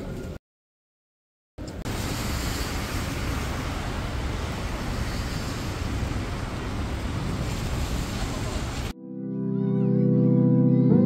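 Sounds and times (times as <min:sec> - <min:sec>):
low city rumble: 0:00.0 - 0:00.4, 0:01.6 - 0:08.9
rushing hiss: 0:01.9 - 0:08.9.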